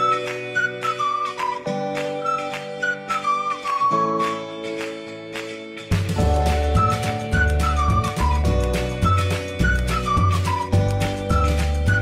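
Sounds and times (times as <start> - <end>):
background music with bass and beat: 5.4 - 12.0.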